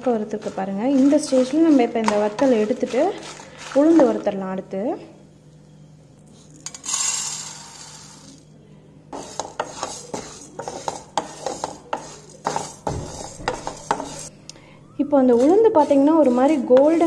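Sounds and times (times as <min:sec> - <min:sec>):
spatula scraping a pan: 0:00.2 - 0:04.2, 0:09.1 - 0:14.3, 0:15.2 - 0:17.0.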